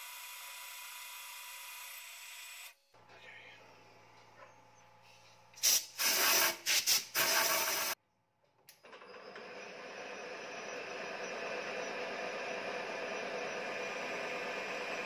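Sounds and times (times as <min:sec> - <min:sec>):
lathe motor hum: 0:08.9 - 0:15.0
lathe tool cutting steel: 0:08.9 - 0:15.0.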